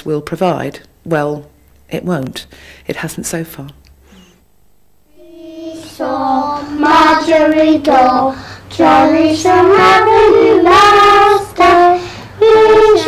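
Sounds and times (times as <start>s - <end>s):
young children singing: 5.1s - 13.0s.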